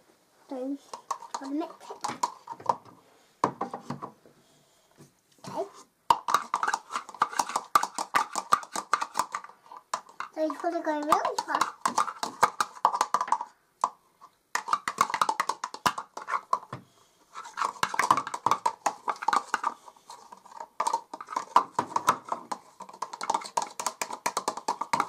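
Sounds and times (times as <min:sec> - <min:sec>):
toy utensil scraping plastic bowl: 0:00.8 - 0:02.6, 0:06.2 - 0:13.4, 0:14.6 - 0:16.7, 0:17.3 - 0:25.0.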